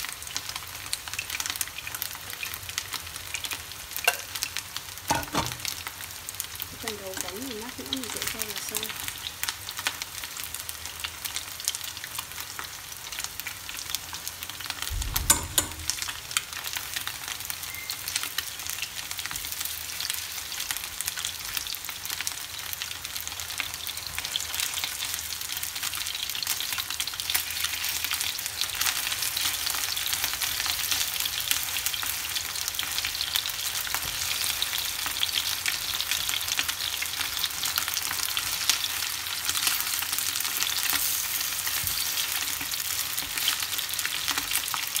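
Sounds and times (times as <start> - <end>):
chicken frying in oil: 0.0 - 45.0
low thump: 14.9 - 16.3.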